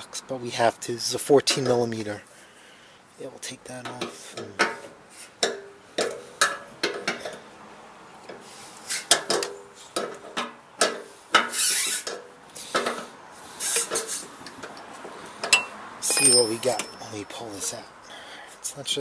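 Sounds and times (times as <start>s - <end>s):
wrench clinking on metal: 15.4s - 17.8s.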